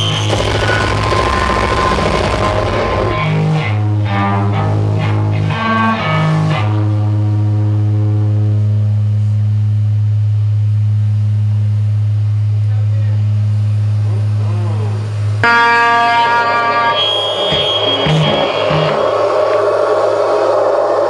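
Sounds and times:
droning low guitar note: 0.0s - 12.5s, 13.5s - 21.0s
low guitar riff: 2.1s - 9.2s, 14.0s - 19.6s.

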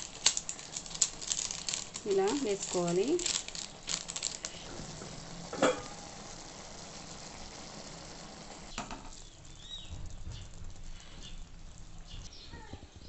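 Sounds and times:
noodles simmering hiss: 0.0s - 13.0s.

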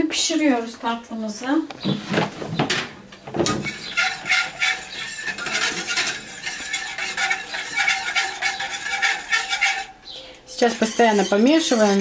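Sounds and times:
whisk scraping a steel saucepan: 3.4s - 12.0s.

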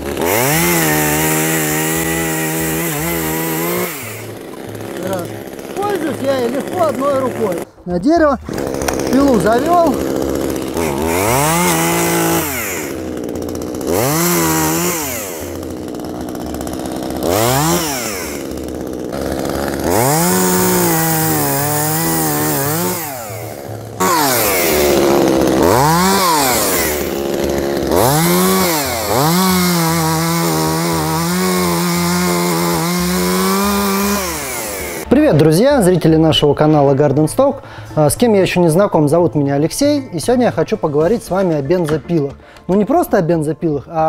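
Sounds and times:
chainsaw engine revving: 0.0s - 7.8s, 8.4s - 35.5s.

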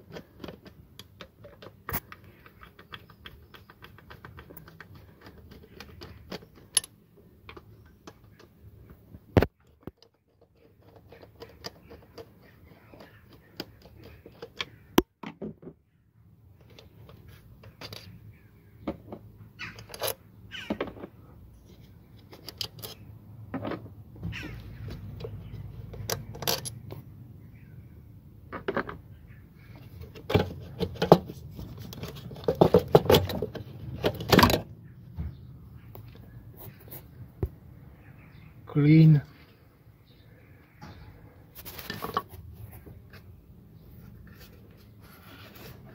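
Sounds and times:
metallic clicks and clinks: 25.9s - 27.0s.

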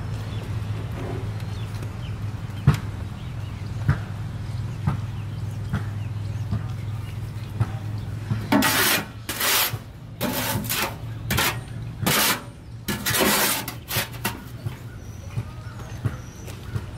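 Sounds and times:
tool scraping in a wheelbarrow: 8.5s - 14.8s.

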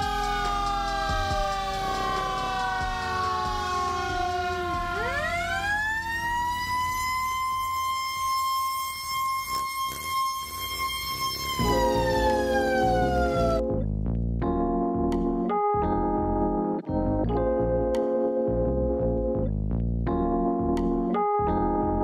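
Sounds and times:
siren wailing: 0.0s - 13.8s.

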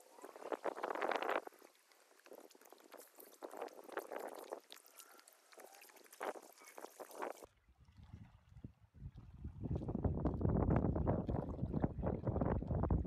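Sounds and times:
small waves lapping at shore: 0.0s - 9.9s.

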